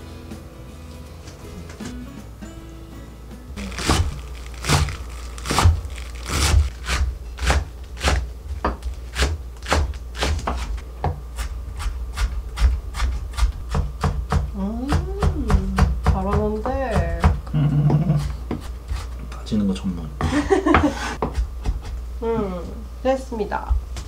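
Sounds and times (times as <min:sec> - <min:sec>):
knife chopping on wooden board: 0:03.7 - 0:19.2, 0:20.7 - 0:22.0.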